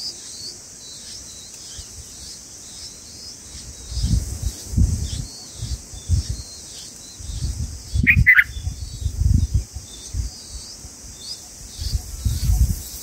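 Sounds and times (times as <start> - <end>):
bird chirps: 0.0 - 13.0
insects hissing: 0.0 - 13.0
low gusty rumbles: 7.2 - 10.3.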